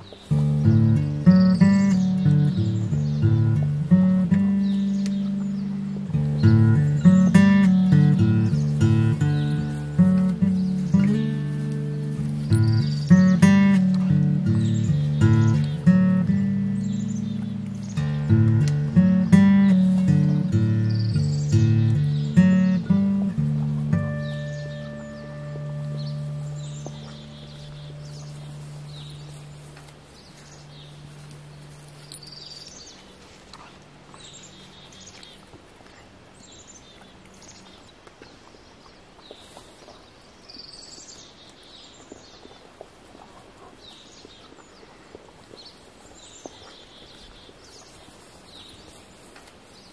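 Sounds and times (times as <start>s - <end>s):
birds chirping: 0.0s - 49.9s
guitar notes: 0.2s - 32.7s
small clicks and rustles: 28.1s - 34.3s, 39.2s - 49.9s.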